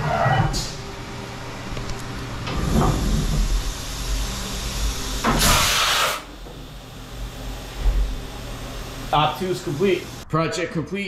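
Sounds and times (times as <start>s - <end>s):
milling machine humming: 0.0s - 10.3s
loud hiss: 2.7s - 6.4s.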